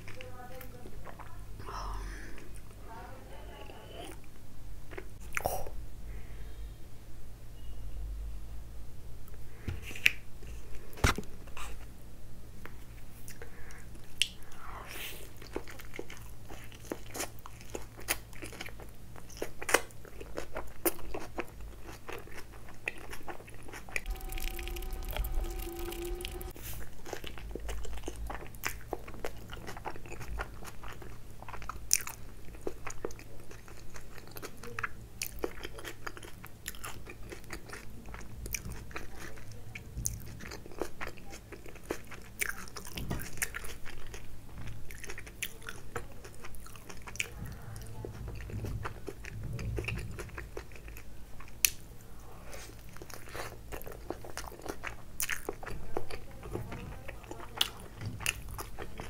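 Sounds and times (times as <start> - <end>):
chewing with crunches: 12.6 - 59.0.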